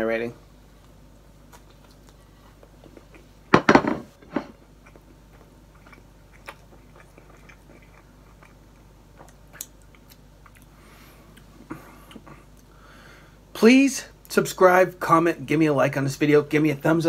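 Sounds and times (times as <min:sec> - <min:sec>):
man chewing food: 0:00.8 - 0:12.8
loud knocks: 0:03.5 - 0:04.1.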